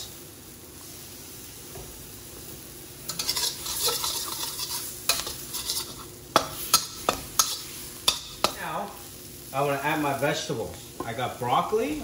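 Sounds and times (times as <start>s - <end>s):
chicken and egg sizzling in a wok: 0.0s - 12.0s
spatula scraping against wok: 3.1s - 8.6s.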